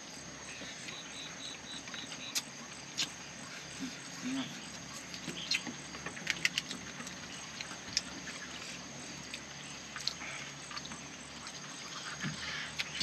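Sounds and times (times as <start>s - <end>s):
chewing clicks and smacks: 4.8s - 8.2s, 9.3s - 11.6s.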